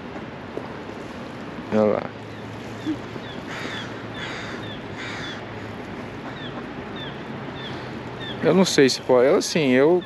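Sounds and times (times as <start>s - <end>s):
crow cawing: 3.2s - 8.4s.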